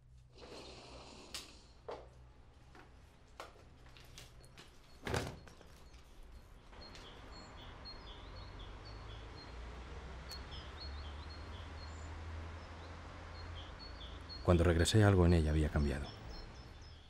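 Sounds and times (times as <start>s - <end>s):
low city rumble: 0.0s - 17.0s
small birds chirping: 4.3s - 17.0s.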